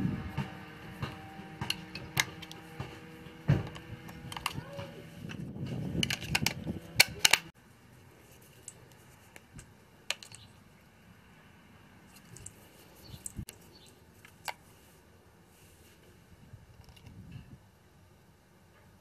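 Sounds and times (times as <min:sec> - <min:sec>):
plastic battery cover snapping: 0:06.0 - 0:07.5.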